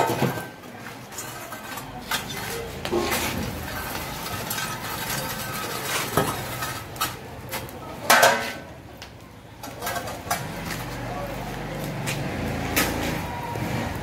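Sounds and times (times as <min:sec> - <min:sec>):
iron rod clanking on metal pots: 0:08.1 - 0:08.7.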